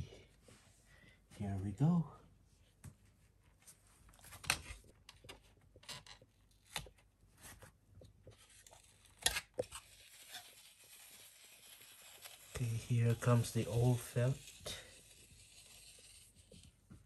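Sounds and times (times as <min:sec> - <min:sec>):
felt strip tearing off tape: 0:08.6 - 0:16.6.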